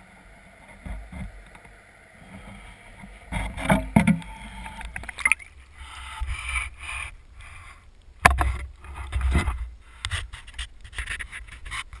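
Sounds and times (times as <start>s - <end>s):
rubbing and scraping on plastic case: 8.3s - 12.0s.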